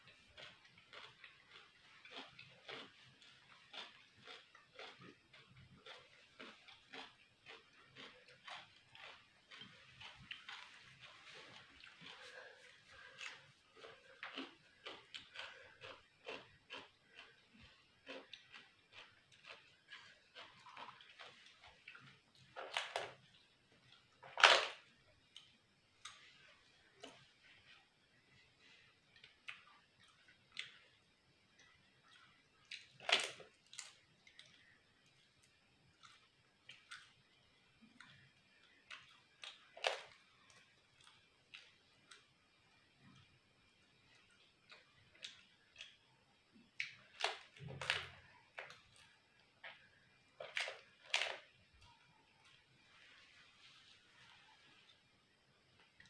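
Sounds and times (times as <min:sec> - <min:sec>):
crisp food crunching: 0:00.1 - 0:26.3, 0:31.6 - 0:34.7, 0:37.8 - 0:42.3, 0:46.6 - 0:52.9.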